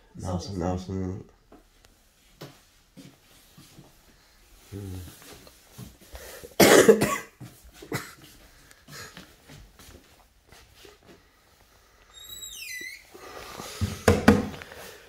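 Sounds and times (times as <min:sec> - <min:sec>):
person coughing: 0:06.6 - 0:08.3
steps on wooden floor: 0:07.4 - 0:11.2, 0:13.4 - 0:14.9.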